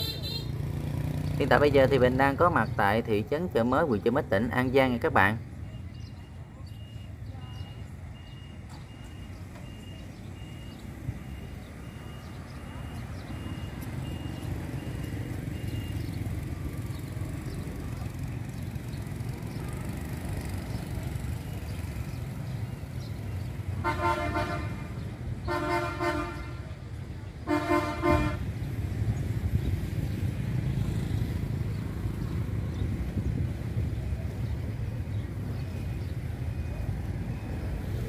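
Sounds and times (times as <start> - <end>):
vehicle horn honking: 0.0 - 0.6, 23.8 - 26.8, 27.4 - 28.5
street traffic rumble: 0.0 - 38.0.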